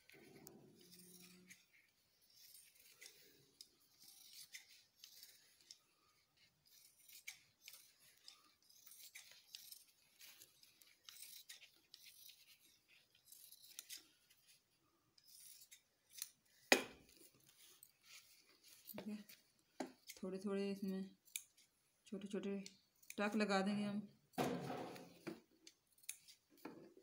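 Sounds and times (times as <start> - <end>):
scissors snipping cloth: 0.0 - 14.2, 15.2 - 20.2, 21.1 - 21.7, 25.1 - 26.7.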